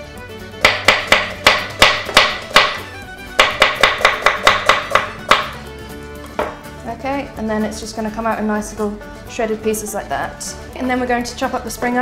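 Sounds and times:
knife chopping on wooden board: 0:00.6 - 0:05.6, 0:06.3 - 0:06.6.

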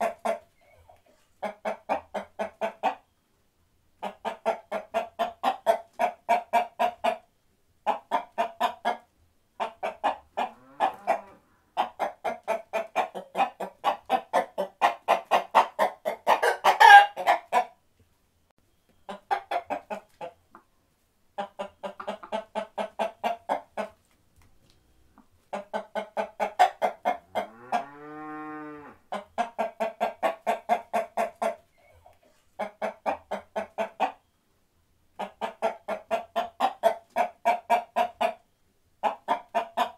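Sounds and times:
chickens clucking: 0:00.0 - 0:03.3, 0:04.0 - 0:17.8, 0:18.8 - 0:28.1, 0:29.1 - 0:34.4, 0:35.1 - 0:39.9
chicken squawk: 0:09.6 - 0:17.7
long drawn-out chicken call: 0:09.6 - 0:17.7, 0:25.9 - 0:34.3.

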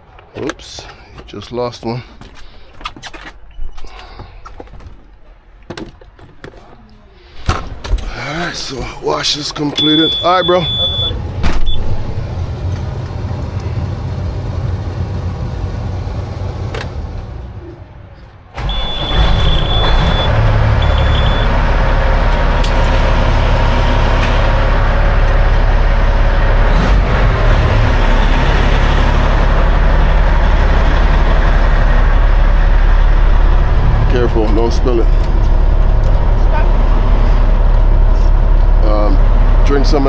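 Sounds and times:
truck diesel engine running: 0:08.4 - 0:40.0
high beeping: 0:09.8 - 0:11.8, 0:18.6 - 0:21.6.

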